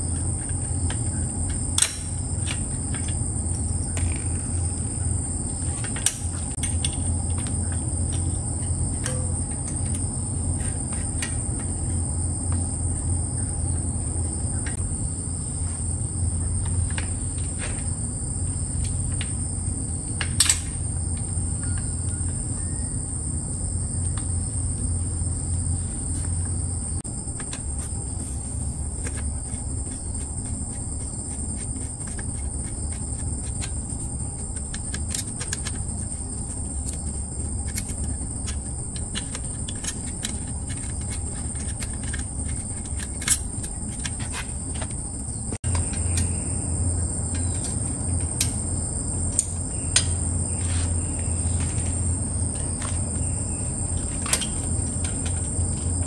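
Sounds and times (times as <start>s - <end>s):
insects chirring: 0.0s - 56.0s
bicycle parts clicking: 29.0s - 45.0s.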